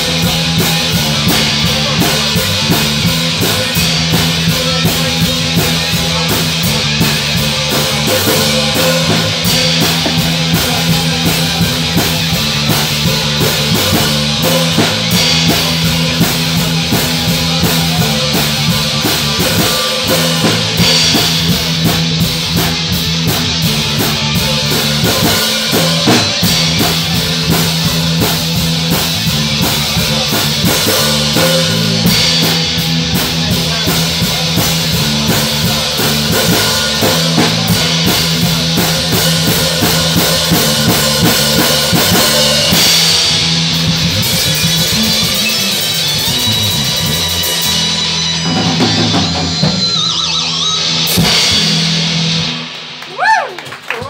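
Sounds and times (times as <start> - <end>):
bass drum beat: 0.0 - 50.2
live rock band playing: 0.0 - 54.0.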